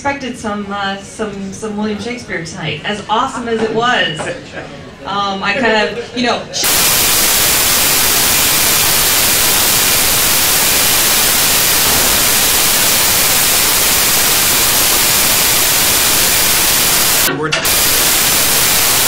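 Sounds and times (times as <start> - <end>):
loud static hiss: 6.6 - 19.0.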